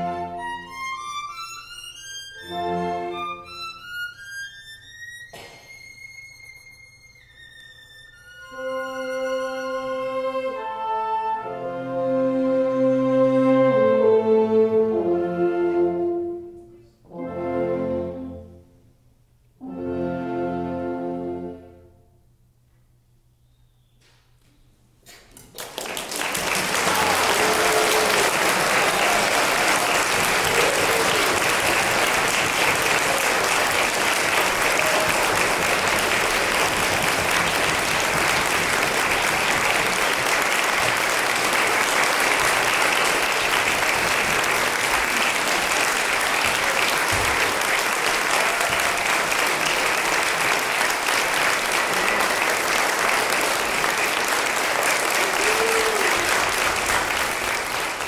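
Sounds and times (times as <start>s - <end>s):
audience applauding: 25.3s - 58.0s.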